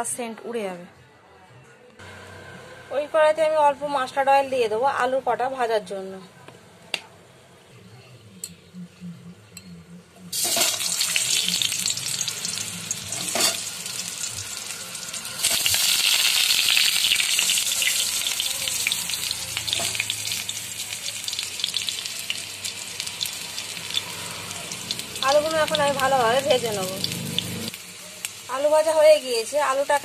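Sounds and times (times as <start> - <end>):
potatoes sizzling in hot oil: 10.3 - 30.0.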